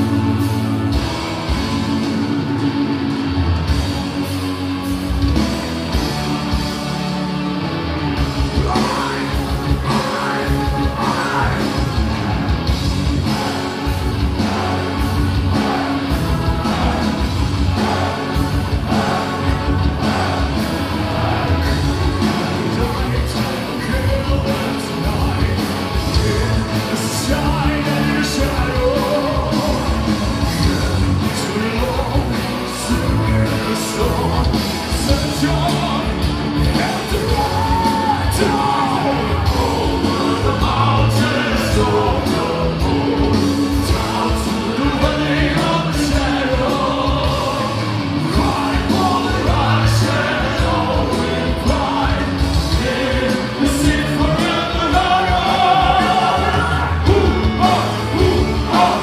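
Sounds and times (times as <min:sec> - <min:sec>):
symphonic metal band playing live: 0:00.0 - 0:59.0
person singing: 0:22.2 - 0:59.0.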